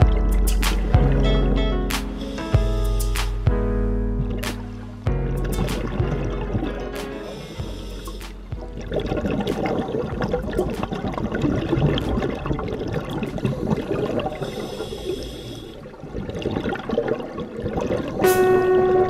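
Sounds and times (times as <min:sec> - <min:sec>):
music: 0:00.0 - 0:14.5, 0:18.2 - 0:19.0
underwater bubbles gurgling: 0:04.1 - 0:19.0.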